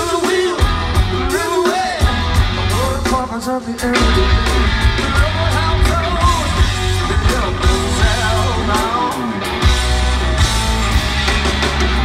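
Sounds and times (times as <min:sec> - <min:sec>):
man singing: 0:00.0 - 0:09.6
live hard rock band: 0:00.0 - 0:12.0.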